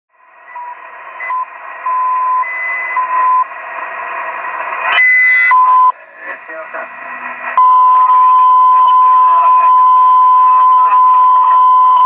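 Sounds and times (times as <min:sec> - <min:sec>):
steady radio tones: 0:00.2 - 0:12.0
radio static hiss: 0:02.4 - 0:10.7.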